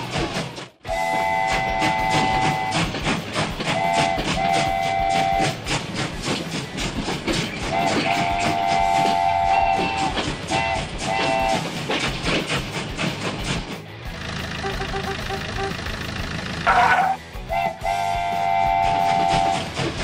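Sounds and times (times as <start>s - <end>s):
train wheels clickety-clack: 0.0s - 20.0s
train whistle blasts: 0.8s - 2.9s, 3.6s - 5.6s, 7.7s - 11.6s, 16.7s - 19.8s.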